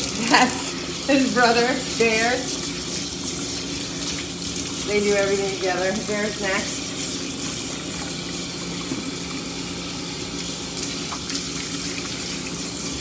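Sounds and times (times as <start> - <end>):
water spraying from hose: 0.0 - 13.0.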